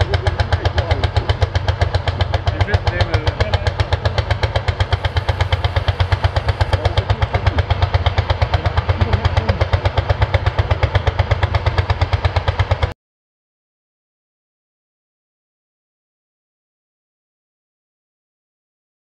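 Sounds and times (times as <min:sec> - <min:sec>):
tractor engine thumping: 0:00.0 - 0:12.9.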